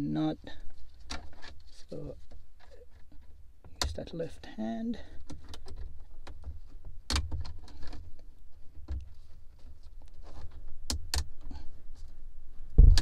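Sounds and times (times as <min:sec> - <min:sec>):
plastic scraping and ticking: 0:05.1 - 0:11.6
sharp plastic clicks: 0:05.2 - 0:08.0.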